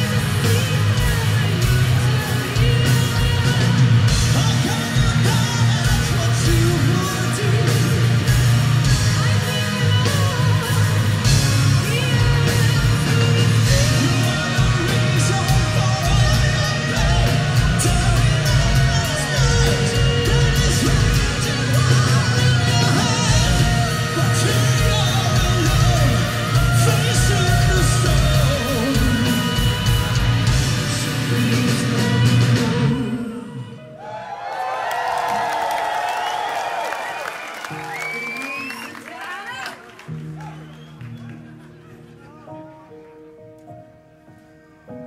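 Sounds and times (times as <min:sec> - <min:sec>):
live metal band playing: 0:00.0 - 0:33.7
woman singing: 0:00.0 - 0:33.9.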